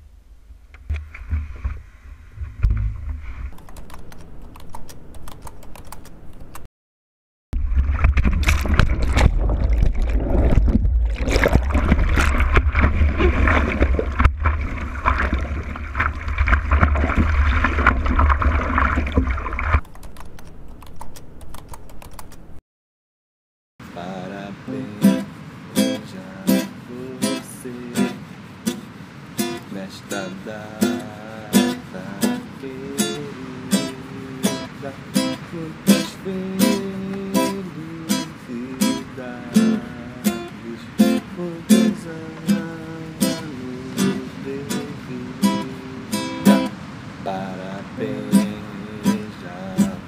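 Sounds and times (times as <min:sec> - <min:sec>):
water rumbling against camera: 0:00.7 - 0:04.5, 0:07.6 - 0:20.1
sharp ticks of spray: 0:24.9 - 0:45.8.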